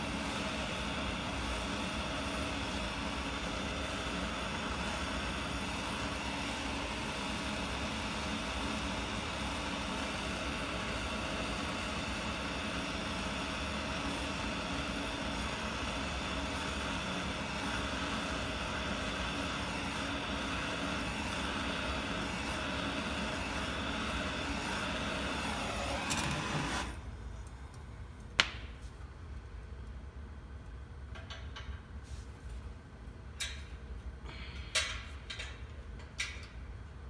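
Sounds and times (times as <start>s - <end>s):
gas torch flame hissing: 0.0s - 27.0s.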